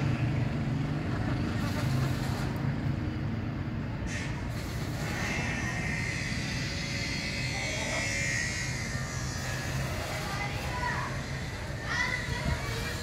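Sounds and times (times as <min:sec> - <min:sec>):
tortoise squealing: 0:05.0 - 0:12.3.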